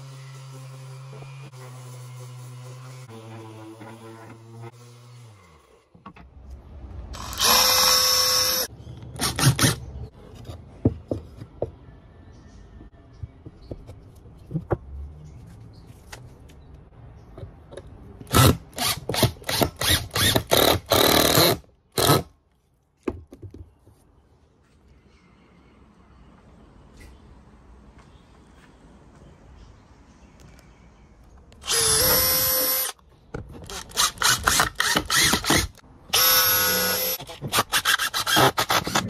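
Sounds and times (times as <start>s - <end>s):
cordless drill driving screws: 7.2s - 9.8s, 31.6s - 33.0s, 33.7s - 39.0s.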